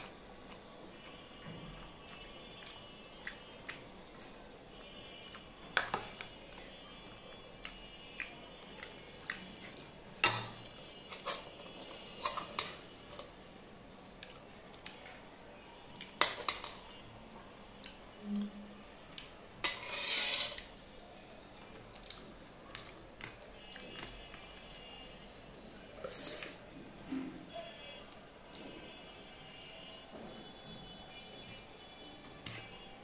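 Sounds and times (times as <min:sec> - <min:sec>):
metal spoon clinking on plates: 0:10.2 - 0:13.2, 0:16.2 - 0:16.9, 0:19.6 - 0:20.7.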